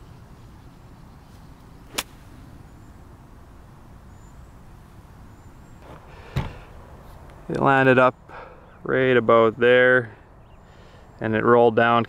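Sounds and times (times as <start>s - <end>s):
faint low background noise: 0.0s - 12.0s
golf club striking ball: 1.9s - 2.3s.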